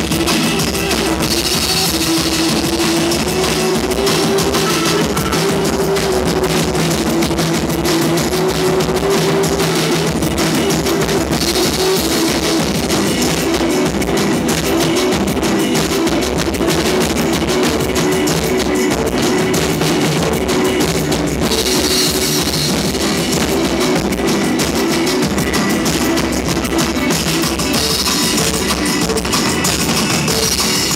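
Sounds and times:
guitar: 0.0 - 30.9
pounding drums: 0.0 - 30.9.

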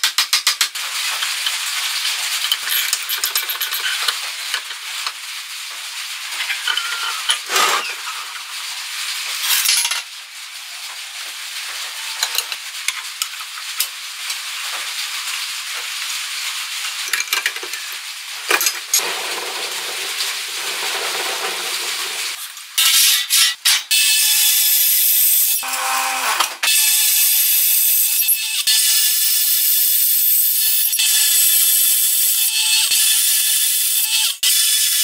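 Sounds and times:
small metal parts clinking: 2.4 - 4.7
steady hiss: 4.2 - 22.8.

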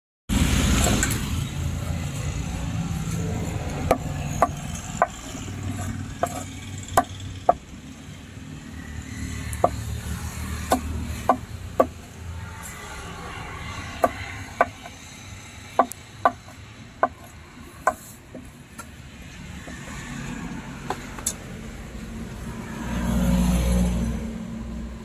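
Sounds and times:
knife chopping on wooden block: 3.8 - 7.6, 9.6 - 9.9, 10.6 - 12.0, 14.0 - 15.0, 15.8 - 17.3, 17.9 - 18.5.

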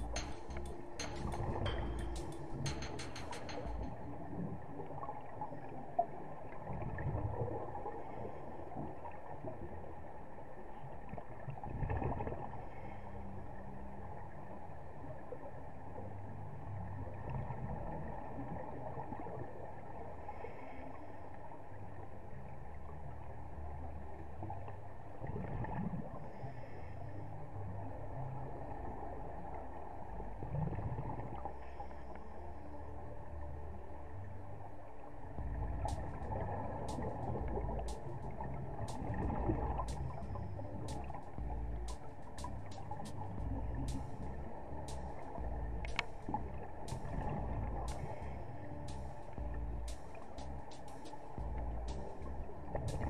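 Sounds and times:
sharp click: 0.0 - 4.0
muffled underwater noise: 0.0 - 53.0
bubbles exhaled through regulator: 35.6 - 40.2.

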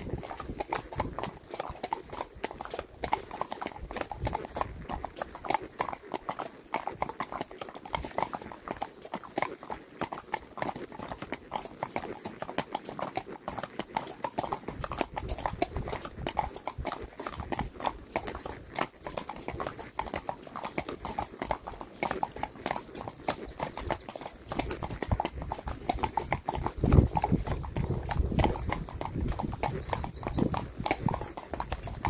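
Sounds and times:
hoofbeats on wet road: 0.0 - 32.0.

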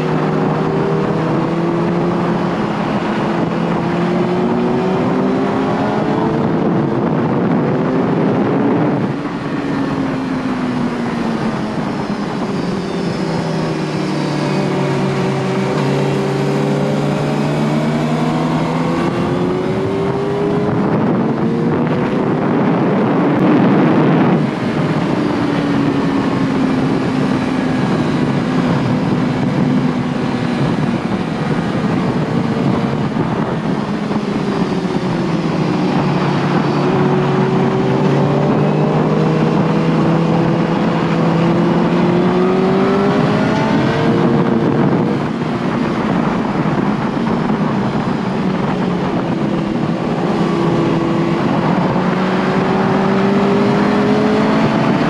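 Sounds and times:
motorcycle engine revving: 0.0 - 55.0
wind rushing over microphone: 0.0 - 55.0.

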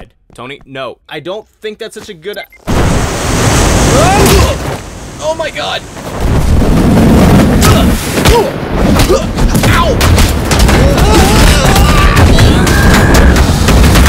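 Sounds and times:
cartoon bangs and impacts: 6.2 - 14.0.

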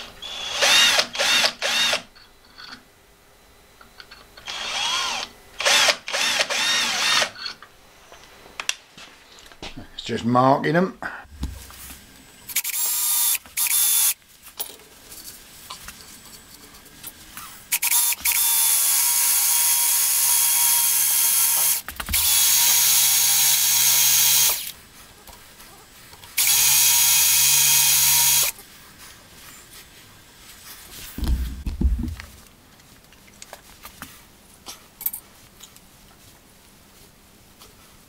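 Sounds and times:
cordless drill drilling into metal: 0.2 - 2.0, 4.4 - 7.4, 12.5 - 14.2, 17.7 - 24.7, 26.4 - 28.6.

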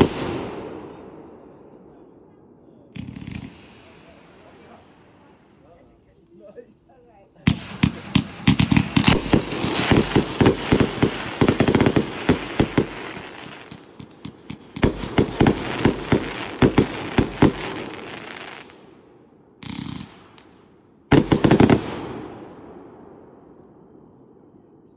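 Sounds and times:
firework cake firing volleys: 3.0 - 5.8, 7.5 - 18.8.

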